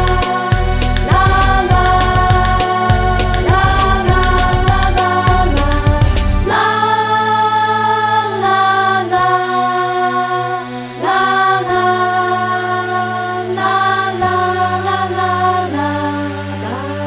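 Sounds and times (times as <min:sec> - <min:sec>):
steady low drone: 0:00.0 - 0:07.0.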